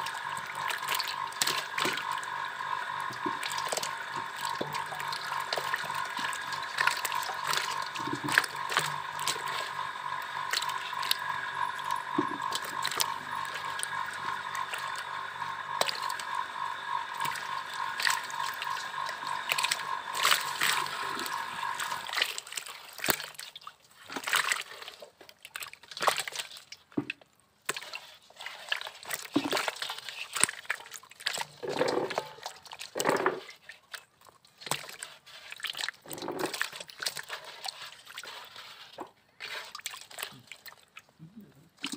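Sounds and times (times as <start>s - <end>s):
steady hum: 0.0s - 23.3s
fish flapping and splashing in water: 0.0s - 41.9s.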